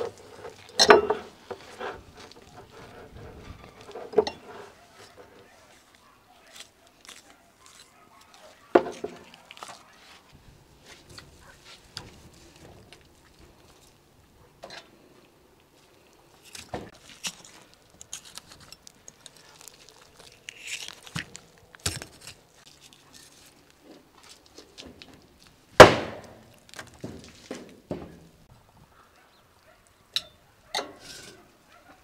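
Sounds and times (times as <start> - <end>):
knife scraping meat: 6.4 - 8.5
sharp loud knock: 25.8 - 26.2.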